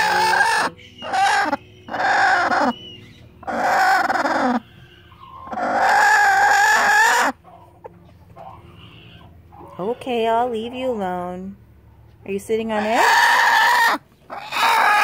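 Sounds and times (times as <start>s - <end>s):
hen screeching: 0.0s - 2.8s, 3.4s - 7.4s, 12.8s - 15.0s.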